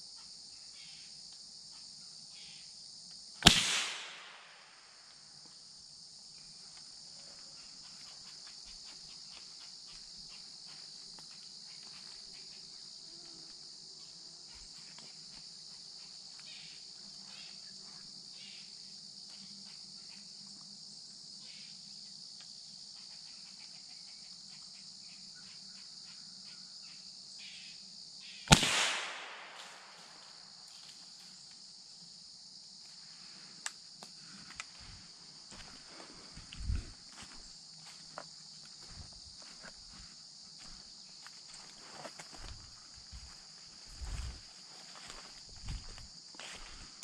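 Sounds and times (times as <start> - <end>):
rifle shot with echo: 3.4 - 4.8, 28.5 - 30.3.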